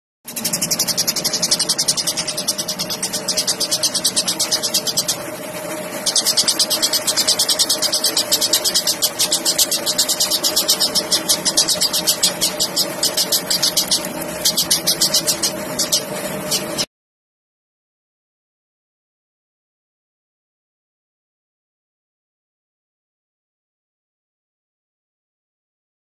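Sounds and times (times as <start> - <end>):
sparrow chirping: 0.3 - 16.8
low hum: 0.3 - 16.9.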